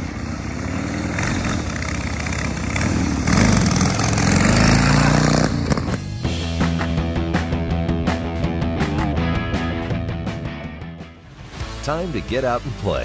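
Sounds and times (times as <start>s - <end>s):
motorcycle engine accelerating: 0.0s - 8.5s.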